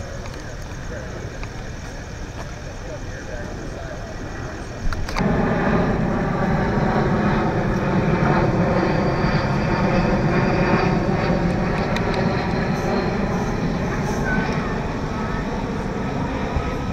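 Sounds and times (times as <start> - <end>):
loud steady engine drone: 0.0 - 16.9
sharp clicks: 4.9 - 5.3.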